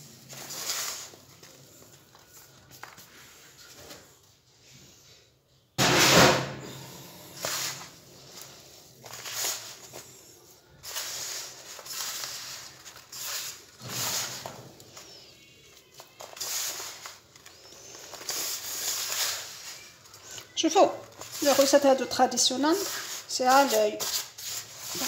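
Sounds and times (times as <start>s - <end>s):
hands scraping mixture in metal pan: 21.3s - 25.0s.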